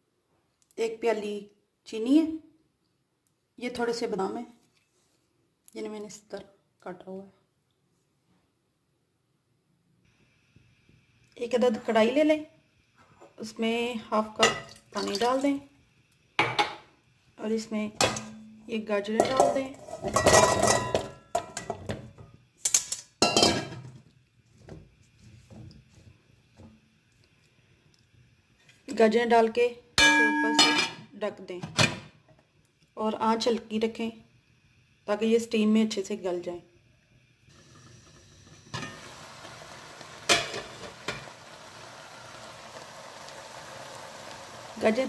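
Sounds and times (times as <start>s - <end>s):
carrots clattering in metal pot: 19.2s - 22.0s
water bubbling in a pan: 37.4s - 45.0s.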